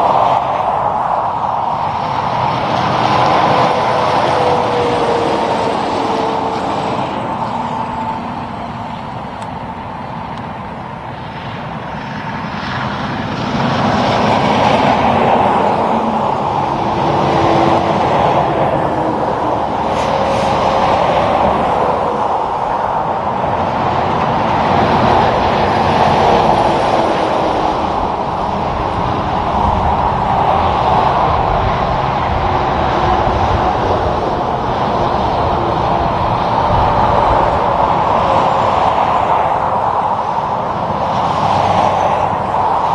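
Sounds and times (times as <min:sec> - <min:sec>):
trucks passing on highway: 0:00.0 - 0:42.9.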